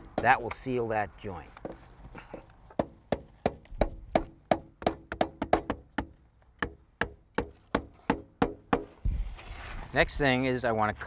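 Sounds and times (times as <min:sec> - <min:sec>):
hammer striking nails through metal: 0:02.8 - 0:08.9.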